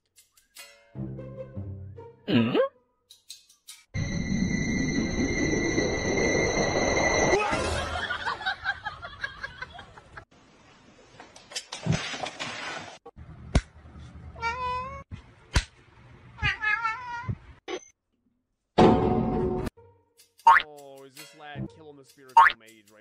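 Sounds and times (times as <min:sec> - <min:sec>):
cat meowing: 0:14.4 - 0:15.0, 0:16.4 - 0:17.4.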